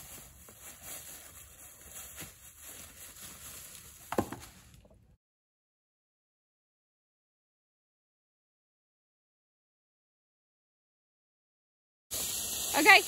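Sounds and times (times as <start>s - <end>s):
footsteps in dry leaves: 0.0s - 4.8s
log dropped on firewood pile: 4.0s - 5.0s.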